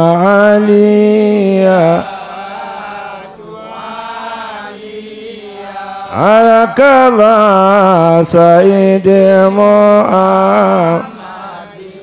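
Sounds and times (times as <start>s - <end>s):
man chanting: 0.0s - 12.0s
group of voices answering: 10.1s - 12.0s.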